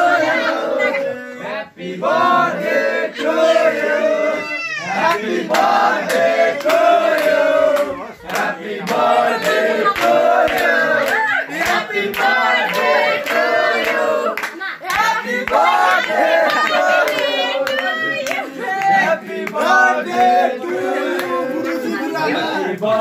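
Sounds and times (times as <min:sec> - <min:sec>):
group of people singing: 0:00.0 - 0:23.0
hand claps: 0:05.1 - 0:20.4.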